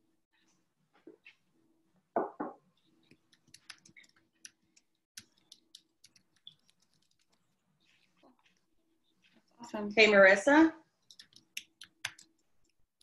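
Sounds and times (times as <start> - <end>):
keyboard typing: 3.0 - 7.6, 11.0 - 12.8.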